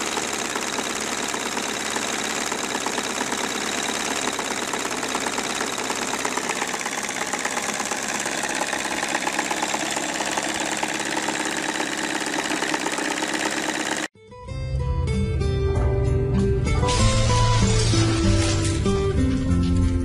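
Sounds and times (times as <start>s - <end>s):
model diesel engine clattering: 0.0s - 14.1s.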